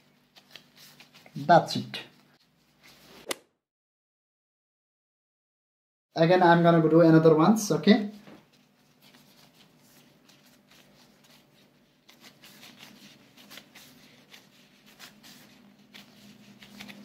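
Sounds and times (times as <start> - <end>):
plastic gloves crinkling: 0.0 - 3.0, 8.2 - 17.0.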